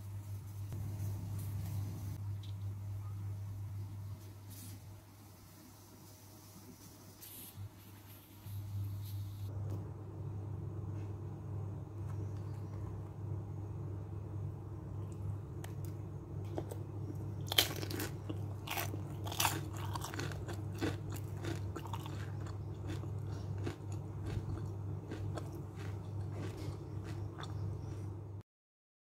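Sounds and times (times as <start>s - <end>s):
steady low hum: 0.0s - 28.4s
crunchy food chewing: 15.0s - 28.4s.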